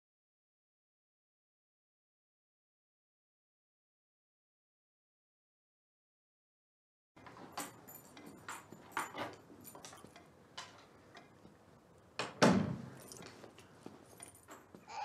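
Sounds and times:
keys and door lock clicking: 7.2s - 11.4s, 12.3s - 14.8s
wooden door shutting: 12.2s - 13.0s.

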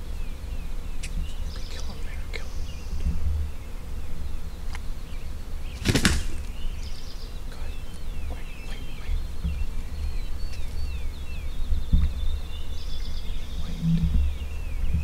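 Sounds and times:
small birds chirping: 0.0s - 15.0s
turkey wing flapping: 5.7s - 6.6s.

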